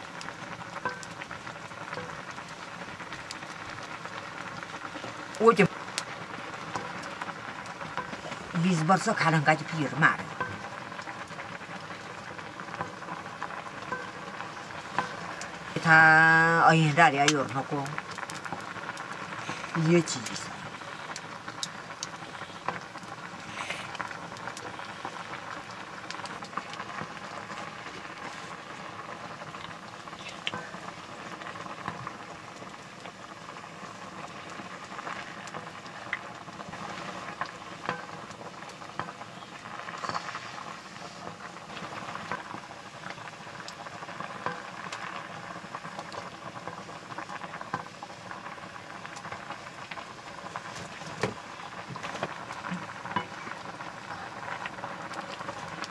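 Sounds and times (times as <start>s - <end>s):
leaves boiling in wok: 0.0s - 55.9s.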